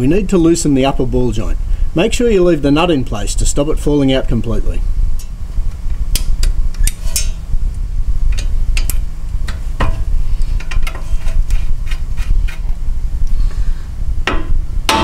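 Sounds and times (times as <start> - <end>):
steady low rumble: 0.0 - 15.0
spanner clicking on metal: 6.1 - 7.4.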